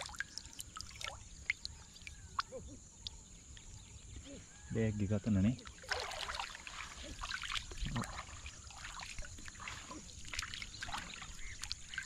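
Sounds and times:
feet splashing in shallow water: 5.6s - 12.0s.

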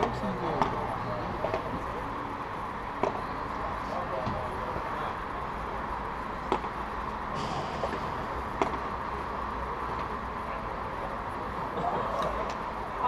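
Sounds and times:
background noise: 0.0s - 13.0s
padel ball hit by racket: 6.5s - 6.7s, 8.6s - 8.9s.

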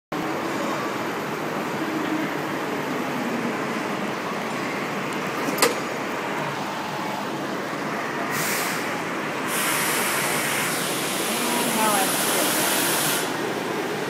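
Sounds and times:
burst of hissing: 9.5s - 13.3s.

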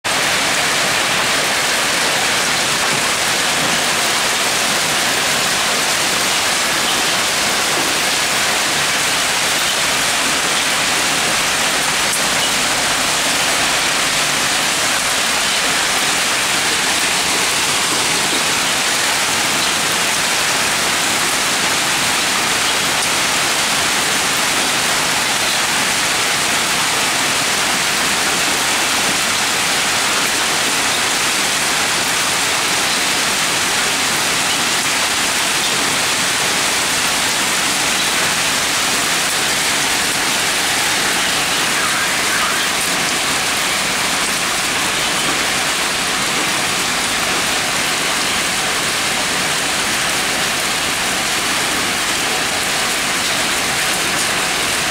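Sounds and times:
hail and rain on pavement: 0.0s - 54.9s.

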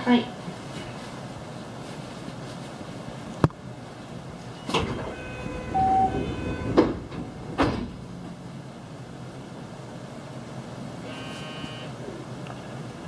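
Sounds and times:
sliding doors knocking shut: 4.6s - 8.4s
short beep: 4.8s - 6.8s, 11.1s - 11.9s.

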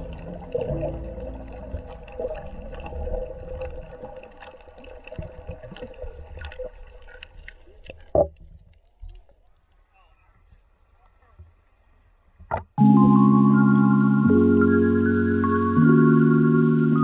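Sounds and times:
soft background music: 0.0s - 3.2s, 12.8s - 17.0s
muffled underwater water: 0.0s - 17.0s.

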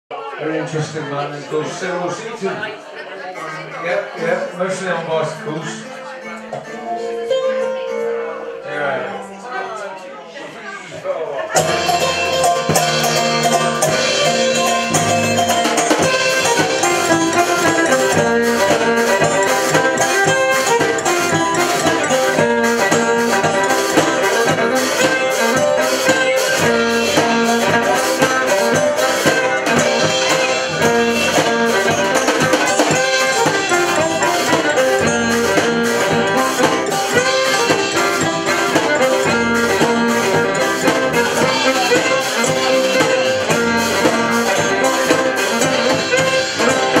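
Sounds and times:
banjo: 0.1s - 9.8s, 11.4s - 47.0s
acoustic guitar: 11.5s - 47.0s
drum kit beat: 11.5s - 47.0s
fiddle lead: 11.6s - 47.0s.

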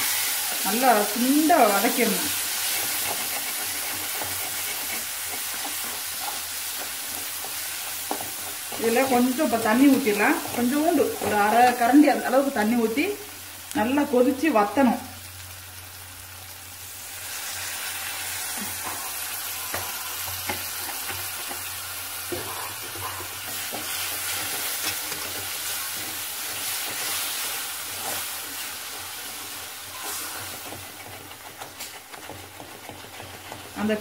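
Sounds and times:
water sizzling in a hot pan: 0.0s - 34.0s
spatula scraping pan bottom: 0.5s - 12.0s, 22.3s - 34.0s.

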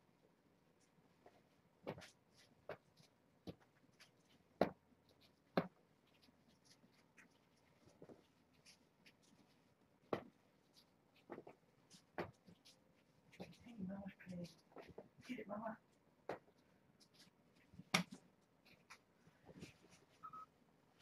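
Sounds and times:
scratchy rustles: 0.8s - 15.4s.

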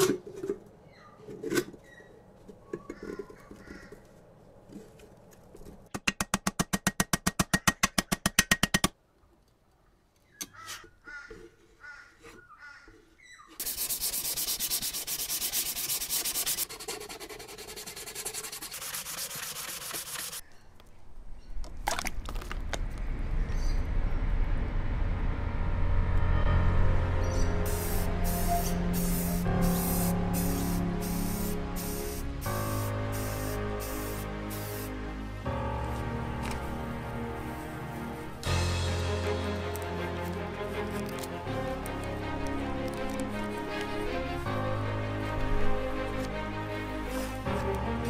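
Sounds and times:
fast rasping strokes: 13.6s - 20.4s
hand sanding with sandpaper: 13.6s - 20.4s
low rumble: 22.0s - 29.3s.

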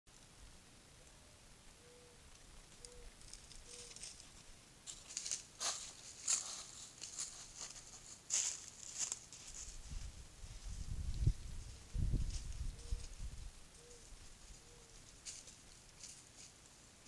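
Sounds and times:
footsteps in dry brush: 3.3s - 16.7s.

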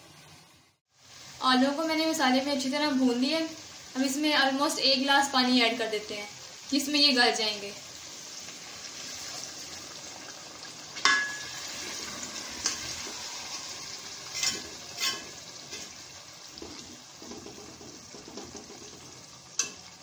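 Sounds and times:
food sizzling in metal pot: 0.0s - 20.0s
metal ladle clinking against pot: 11.0s - 11.6s.

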